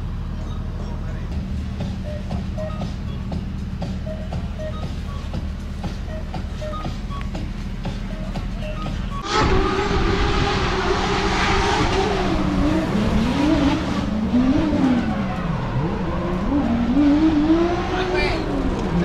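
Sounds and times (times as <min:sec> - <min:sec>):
car engine revving: 0:09.2 - 0:19.0.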